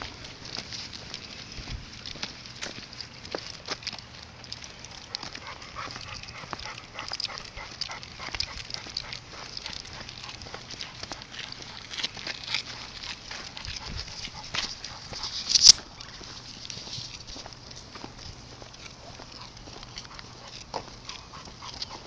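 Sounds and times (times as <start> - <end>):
dog paws scuffing on pavement: 0.0 - 22.0.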